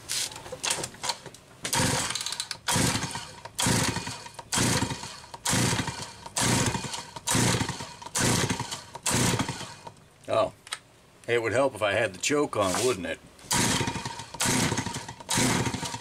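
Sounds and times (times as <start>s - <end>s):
chainsaw starter rope pulls: 0.8s - 9.9s, 12.6s - 16.0s
engine cranking rasp: 1.7s - 9.9s, 12.8s - 16.0s.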